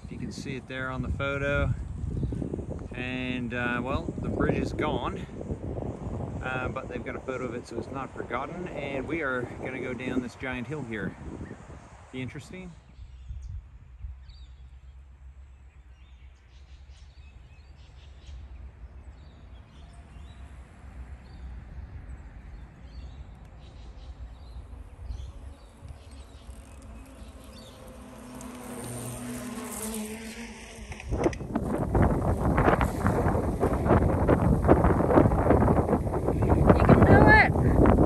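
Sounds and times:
wind rushing over microphone: 0:00.0 - 0:14.6, 0:18.4 - 0:38.0
low outdoor rumble: 0:20.2 - 0:38.0
faint insect-like buzzing: 0:24.6 - 0:31.8.

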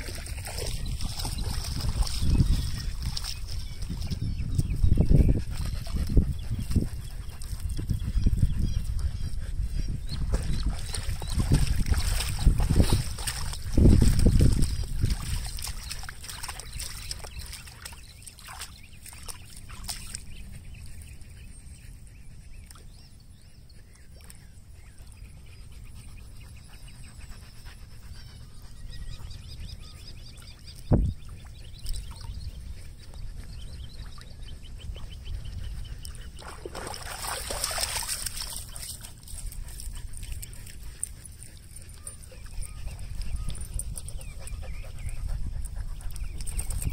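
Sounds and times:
water sloshing: 0:00.0 - 0:04.1, 0:10.3 - 0:20.3, 0:36.3 - 0:44.4
wind rumble on microphone: 0:00.0 - 0:18.2, 0:24.5 - 0:46.9
dog sounds: 0:23.7 - 0:30.8, 0:31.4 - 0:46.9.

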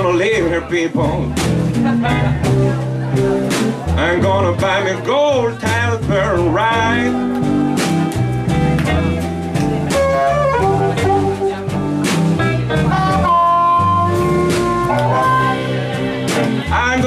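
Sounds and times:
drums: 0:00.0 - 0:17.0
electric guitar: 0:00.0 - 0:17.0
upright bass: 0:00.0 - 0:17.0
person singing: 0:03.9 - 0:07.4
blues harmonica: 0:06.7 - 0:17.0.

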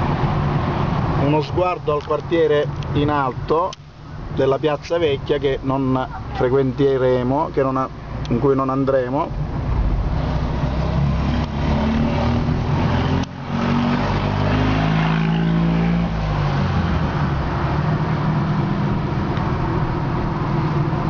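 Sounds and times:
road noise: 0:00.0 - 0:21.0
car engine accelerating: 0:09.3 - 0:21.0.

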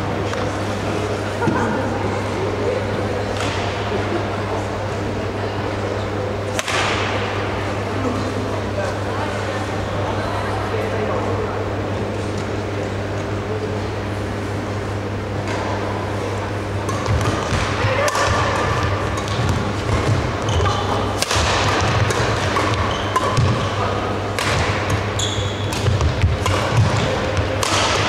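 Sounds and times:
rackets striking shuttlecock: 0:06.5 - 0:07.3, 0:16.9 - 0:28.0
shoes squeaking on court floor: 0:19.2 - 0:21.0, 0:22.6 - 0:23.5, 0:24.9 - 0:27.1.

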